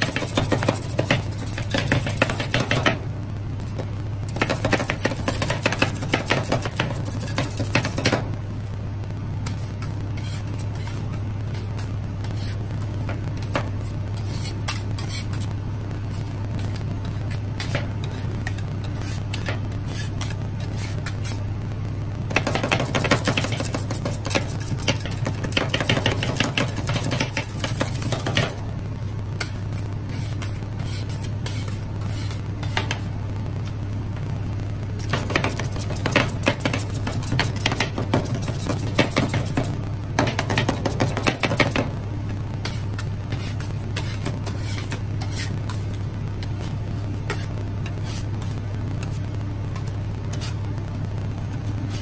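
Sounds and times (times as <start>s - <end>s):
metal spatulas chopping on steel plate: 0.0s - 3.0s, 4.3s - 8.2s, 22.3s - 28.5s, 35.1s - 41.9s
machine low hum: 0.0s - 52.0s.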